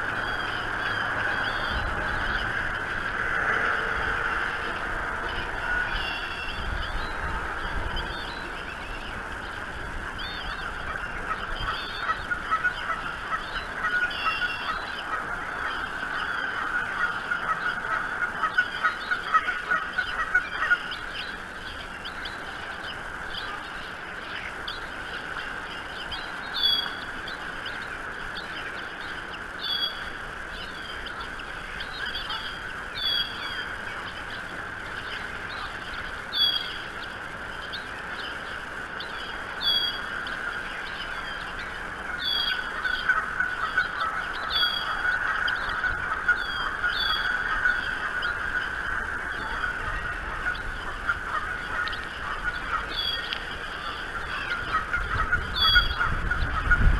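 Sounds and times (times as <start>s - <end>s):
honk-like bird calls: 3.5s - 8.3s, 10.2s - 21.0s, 42.1s - 56.9s
high eaglet peeps: 5.4s - 56.9s.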